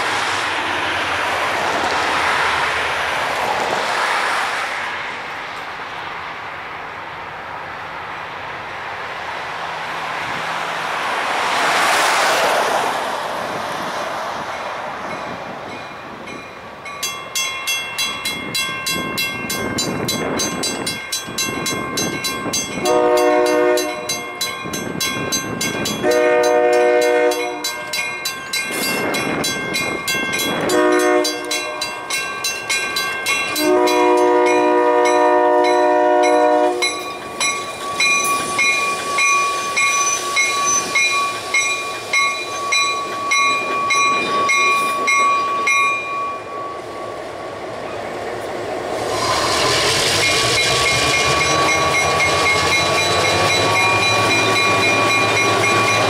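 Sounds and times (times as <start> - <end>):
crossing bell ringing rapidly: 15.1 - 47.2, 49.3 - 56.0
locomotive air horn blasts: 22.8 - 24.3, 26.0 - 28.0, 30.6 - 31.9, 33.5 - 37.0
broad rushing sound: 46.0 - 56.0.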